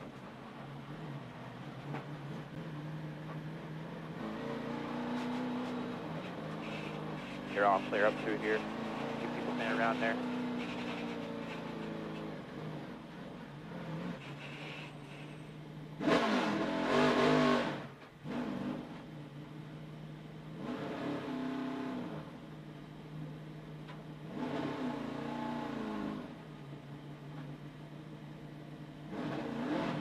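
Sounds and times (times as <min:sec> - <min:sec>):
car engine running at low speed: 0:00.0 - 0:30.0
engine throttle blips: 0:01.8 - 0:20.8.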